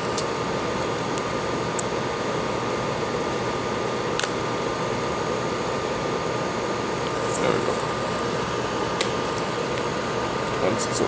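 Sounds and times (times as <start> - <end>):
fan-like hiss: 0.0 - 11.0.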